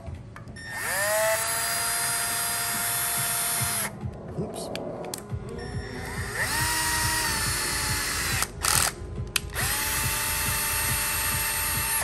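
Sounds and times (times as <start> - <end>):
cordless drill motor whine: 0.6 - 3.9, 5.6 - 12.0
drill clattering: 0.7 - 3.9, 6.1 - 12.0.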